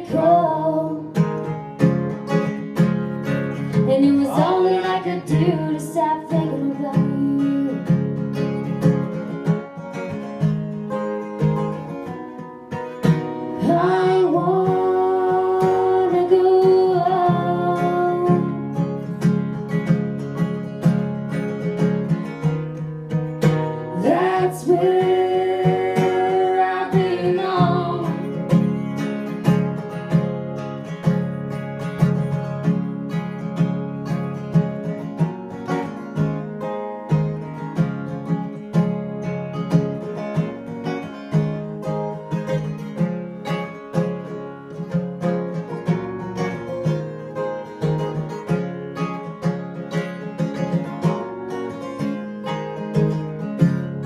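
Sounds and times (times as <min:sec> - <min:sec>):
person singing: 0:00.0 - 0:01.2, 0:03.7 - 0:08.0, 0:13.6 - 0:18.7, 0:23.9 - 0:28.6
acoustic guitar strumming: 0:00.0 - 0:54.0.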